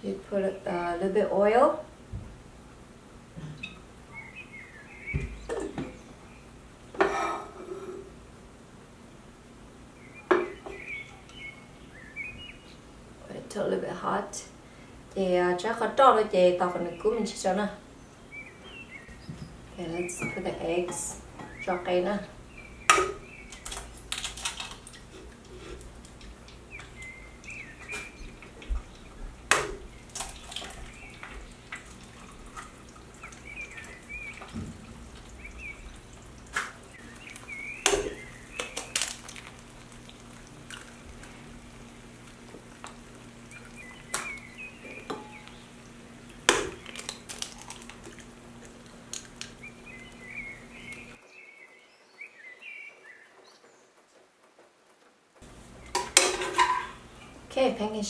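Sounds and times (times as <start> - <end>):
eggs sizzling in a pan: 20.0 - 51.2, 55.4 - 57.5
eggshells cracked on pan: 22.9 - 25.0, 36.5 - 41.0, 46.4 - 48.3, 49.1 - 49.6
utensil tapping pans: 55.8 - 57.1.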